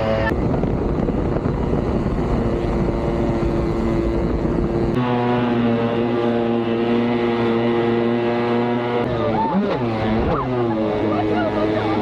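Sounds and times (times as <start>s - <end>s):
jetsurf engine running: 0.0s - 12.0s.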